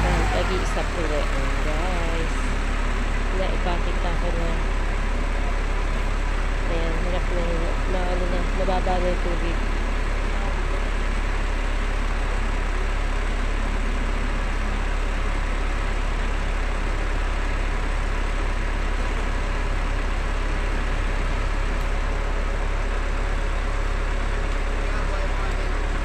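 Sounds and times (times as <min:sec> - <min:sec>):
truck engine and pump humming: 0:00.0 - 0:26.0.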